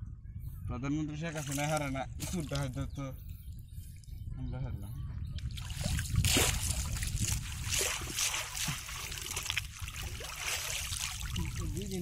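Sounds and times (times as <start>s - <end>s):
water trickling and dripping: 5.3s - 12.0s
shallow water sloshing: 5.4s - 12.0s.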